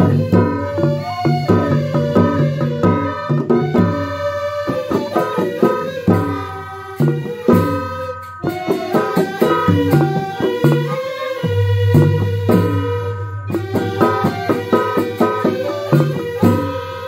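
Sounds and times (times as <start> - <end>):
bamboo flutes playing melody: 0.0 - 17.0
hand drum strokes: 0.0 - 17.0
metallic percussion: 0.0 - 17.0.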